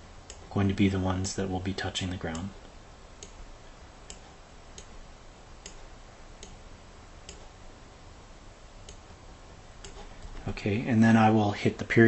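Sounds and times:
faint background hiss: 0:00.0 - 0:12.0
computer mouse clicking: 0:00.2 - 0:00.5, 0:02.3 - 0:03.4, 0:04.0 - 0:05.0, 0:05.6 - 0:06.6, 0:07.2 - 0:07.6, 0:08.8 - 0:09.1, 0:09.8 - 0:10.4.

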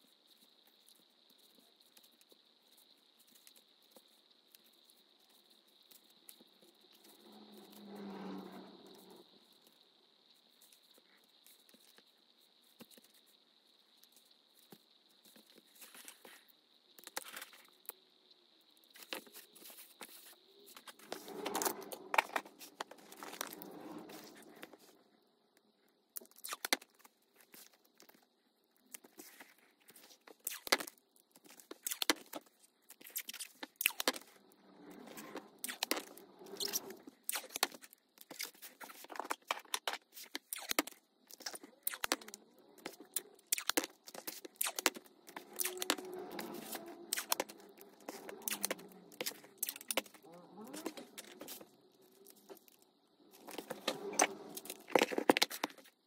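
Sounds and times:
scraping and rustling: 0:19.0 - 0:25.2, 0:40.2 - 0:56.0.

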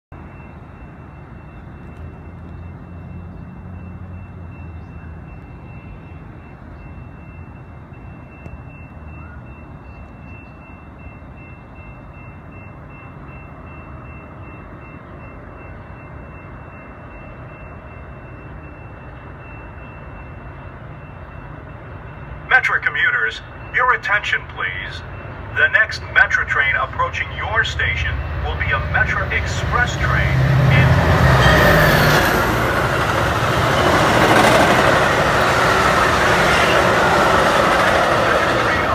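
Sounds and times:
distant train rumble: 0:00.1 - 0:38.9
high-pitched tone: 0:22.1 - 0:38.9.

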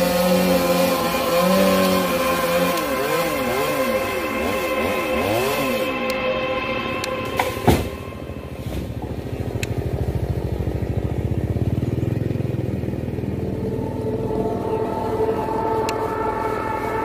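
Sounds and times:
chainsaw engine running: 0:00.0 - 0:06.0, 0:09.0 - 0:14.4
sharp knock: 0:07.3 - 0:08.1.

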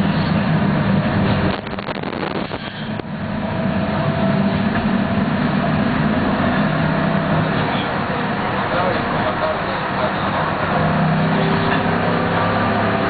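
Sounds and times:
road noise: 0:00.0 - 0:13.0
vehicle cabin drone: 0:00.0 - 0:13.0
faint whine: 0:01.4 - 0:06.3.

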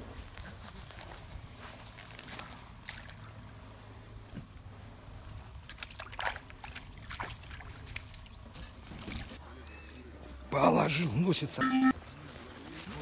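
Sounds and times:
waders stepping through muddy water: 0:00.8 - 0:03.6, 0:05.5 - 0:09.4
fish splashing into water: 0:05.6 - 0:08.3.

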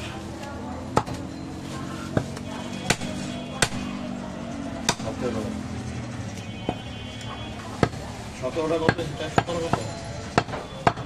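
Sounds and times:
knife chopping meat on wood: 0:02.9 - 0:03.9, 0:08.8 - 0:11.0.

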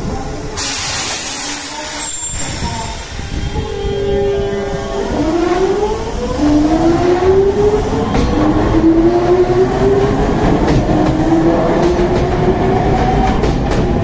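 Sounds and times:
train wheels clicking on rails: 0:06.4 - 0:14.0.

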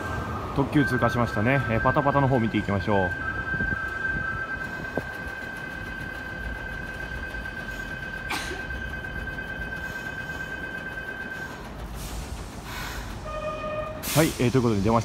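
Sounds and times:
high-pitched electronic tone: 0:00.0 - 0:11.7.

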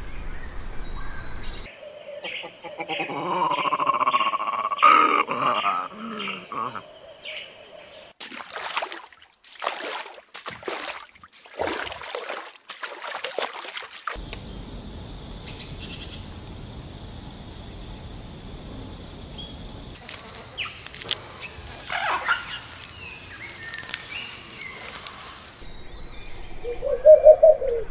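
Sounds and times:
steady outdoor hiss: 0:00.0 - 0:13.0, 0:13.8 - 0:27.9
water splashing and trickling: 0:08.1 - 0:15.0, 0:16.2 - 0:25.7.

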